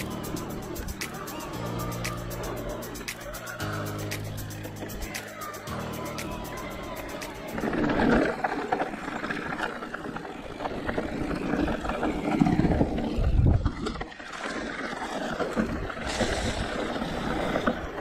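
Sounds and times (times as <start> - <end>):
bike tyres rolling over ground: 7.6 - 18.0.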